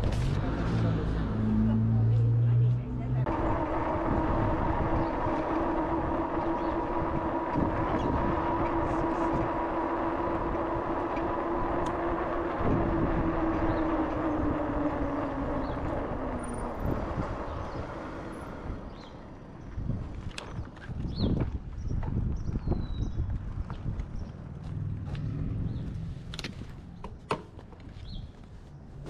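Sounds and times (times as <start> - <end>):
wind: 0.0 - 29.0
electric bike motor whine: 3.2 - 21.4.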